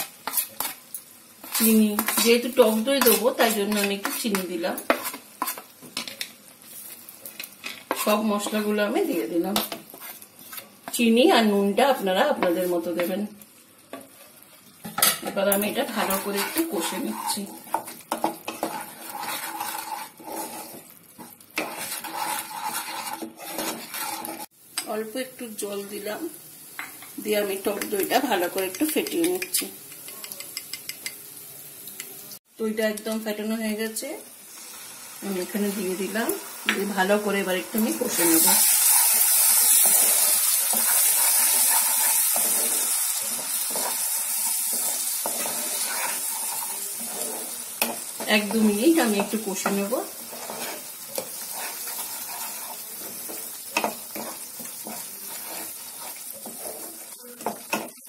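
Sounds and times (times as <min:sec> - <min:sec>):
spatula scraping pan: 0:00.0 - 0:13.3, 0:15.0 - 0:24.5, 0:37.8 - 0:58.0
paste sizzling in oil: 0:00.0 - 0:32.4, 0:33.3 - 0:58.0.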